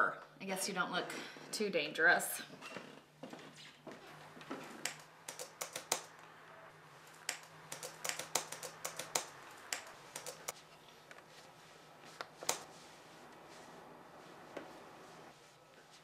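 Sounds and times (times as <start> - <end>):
typing on computer keyboard: 4.8 - 6.1, 7.3 - 10.5.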